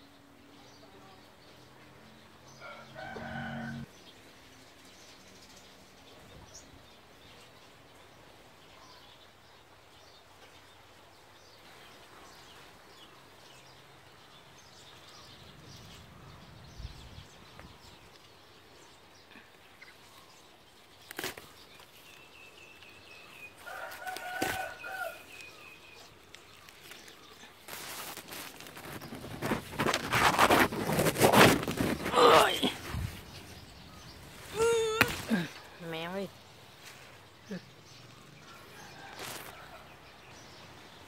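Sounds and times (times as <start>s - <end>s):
small birds chirping: 0.0s - 41.0s
leaves rustling against microphone: 1.0s - 41.0s
rooster crowing: 2.6s - 3.9s, 23.6s - 25.3s.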